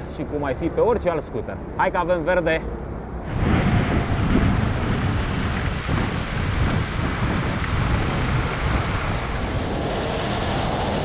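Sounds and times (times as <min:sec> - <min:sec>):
wind buffeting microphone: 0:03.1 - 0:11.0.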